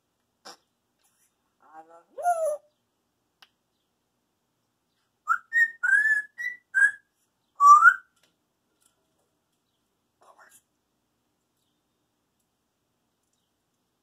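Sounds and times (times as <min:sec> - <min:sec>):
parrot whistling: 0:05.3 - 0:07.0, 0:07.6 - 0:08.1.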